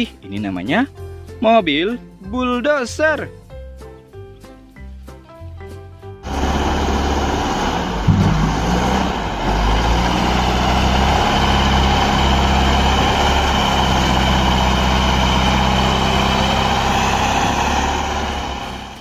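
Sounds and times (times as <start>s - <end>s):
wheel loader diesel engine: 6.2s - 19.0s.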